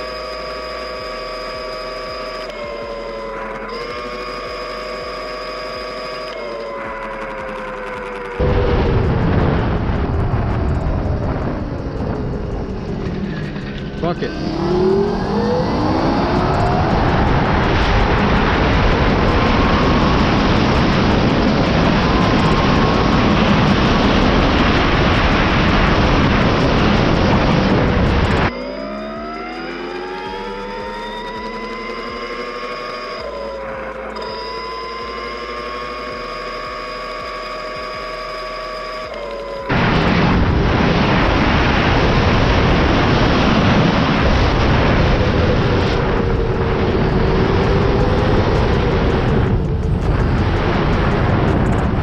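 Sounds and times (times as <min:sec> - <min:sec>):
electric motor high whine: 0:00.0 - 0:52.0
wind rush on microphone: 0:08.4 - 0:28.5, 0:39.7 - 0:52.0.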